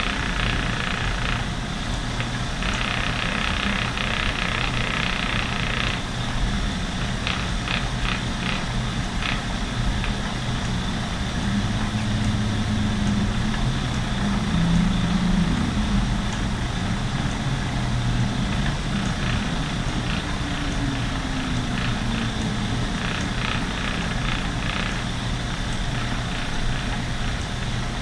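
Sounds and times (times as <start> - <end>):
spinning wheel whirring hum: 0.0 - 28.0.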